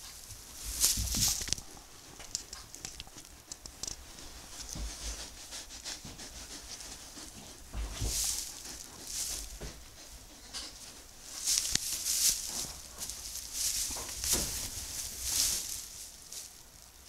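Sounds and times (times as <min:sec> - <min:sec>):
straw bedding rustling: 0:00.0 - 0:02.8, 0:04.0 - 0:17.0
soft thuds: 0:00.6 - 0:01.6, 0:07.6 - 0:10.0, 0:11.4 - 0:16.6.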